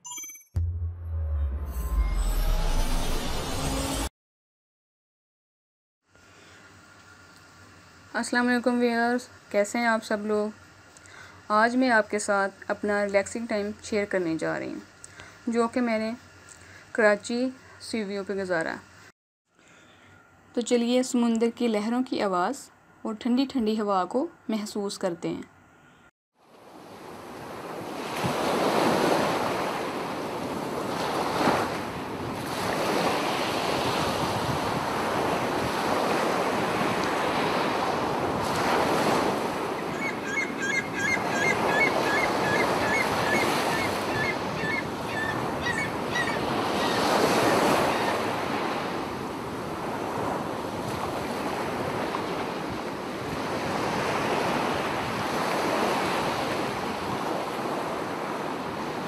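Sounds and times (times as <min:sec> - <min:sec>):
sea surf breaking on beach: 0:26.5 - 0:40.0, 0:41.2 - 0:59.0.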